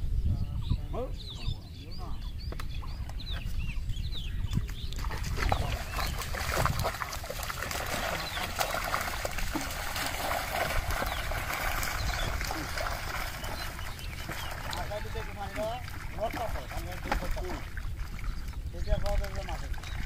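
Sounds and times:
water pouring and dripping: 0:04.6 - 0:20.0
fish thrashing and splashing: 0:04.9 - 0:20.0.

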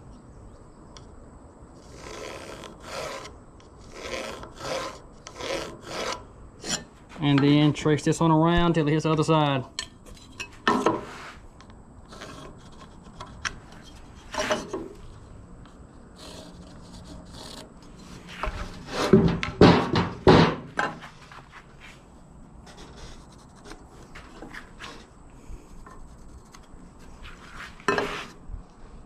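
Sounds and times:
pencil rubbing on wood: 0:12.1 - 0:13.5, 0:16.2 - 0:17.7, 0:25.8 - 0:28.3
boards knocking and scraping: 0:18.3 - 0:21.0.

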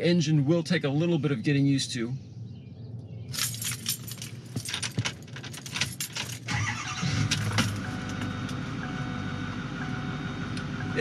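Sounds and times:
keys jangling: 0:03.3 - 0:06.5
diesel engine starting and idling: 0:06.4 - 0:11.0.

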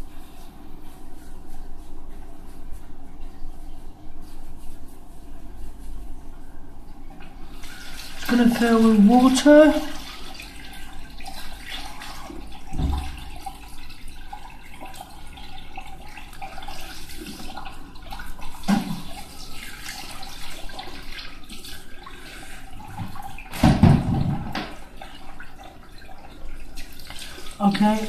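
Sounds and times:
water running into fixture: 0:07.4 - 0:28.0.

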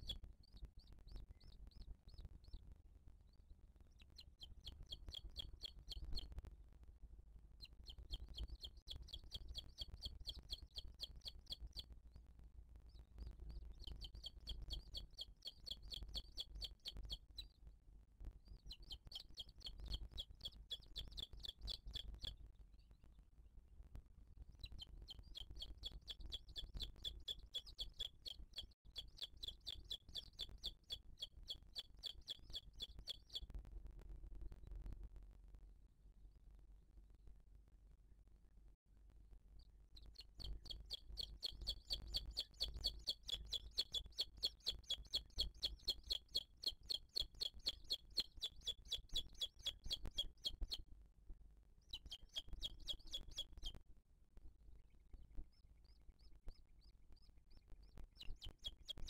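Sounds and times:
eagle chick begging chirps: 0:04.0 - 0:06.3, 0:07.6 - 0:11.8, 0:13.7 - 0:17.5, 0:18.6 - 0:22.3, 0:24.6 - 0:33.5, 0:40.0 - 0:50.8, 0:51.9 - 0:53.8, 0:57.9 - 0:59.0.

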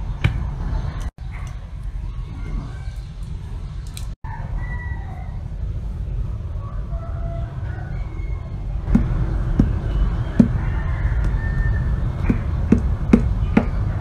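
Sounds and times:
steady low rumble: 0:05.2 - 0:14.0.

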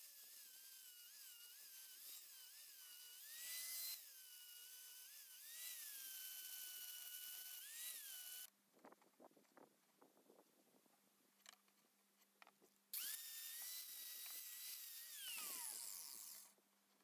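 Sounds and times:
angle grinder grinding metal: 0:00.0 - 0:08.5, 0:13.0 - 0:16.6.

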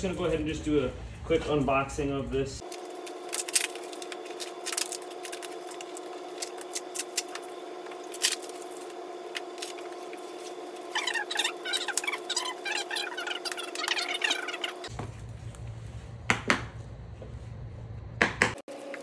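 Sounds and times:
steady hum: 0:02.5 - 0:19.0
high wavering chirps: 0:09.8 - 0:14.9.

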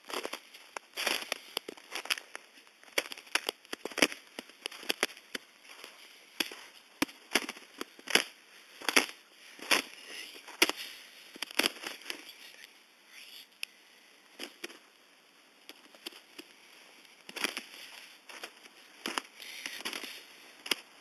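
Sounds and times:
footsteps crunching icy snow: 0:00.0 - 0:12.6, 0:17.2 - 0:20.9.

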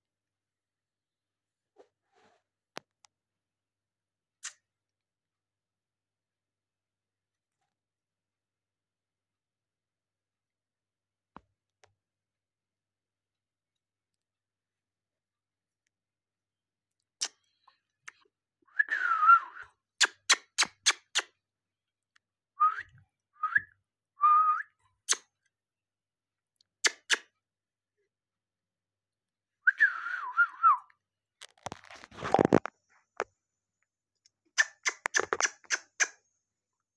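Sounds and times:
rustling noise: 0:31.5 - 0:32.8
parakeet sharp clicks: 0:34.6 - 0:36.1.

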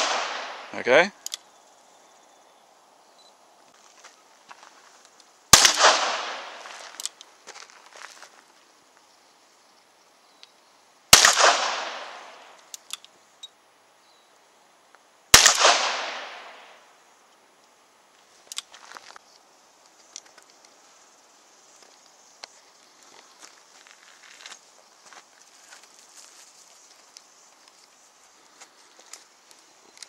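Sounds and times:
revolver shots with echo: 0:05.6 - 0:06.5.

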